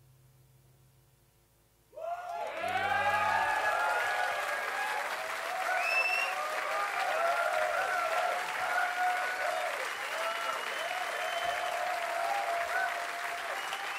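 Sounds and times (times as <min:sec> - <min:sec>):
voices shouting: 0:02.0 - 0:10.6
audience clapping and cheering: 0:02.0 - 0:13.9
whistle: 0:05.7 - 0:06.4, 0:09.9 - 0:11.9, 0:13.4 - 0:13.9.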